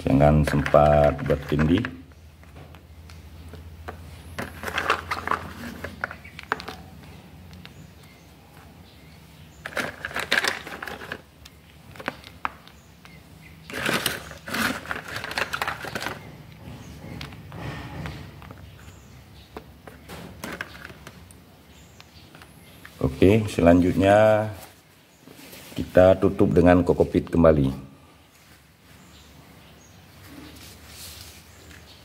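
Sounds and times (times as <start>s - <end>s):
seeds clicking against a pot: 0.1s - 8.2s, 9.6s - 16.2s
soft rustle: 22.9s - 26.0s, 30.1s - 32.0s.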